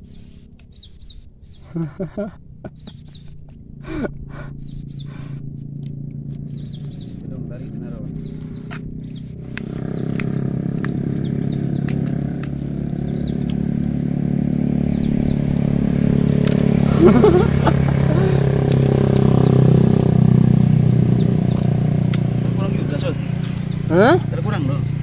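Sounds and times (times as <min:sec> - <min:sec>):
high chirps: 0:00.0 - 0:03.5
engine drone: 0:00.0 - 0:25.0.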